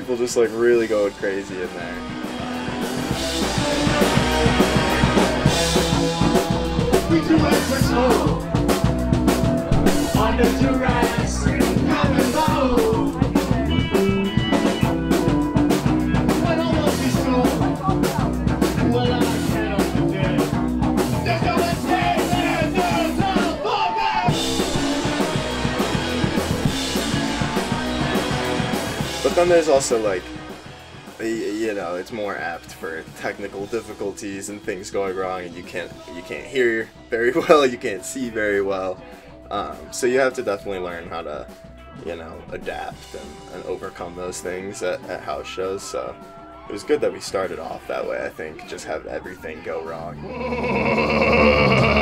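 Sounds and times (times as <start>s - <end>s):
punk rock band playing: 0.0s - 34.2s, 50.2s - 52.0s
drum kit: 0.0s - 46.8s, 50.2s - 52.0s
person singing: 6.9s - 8.6s, 9.8s - 14.2s, 21.4s - 25.2s, 50.2s - 52.0s.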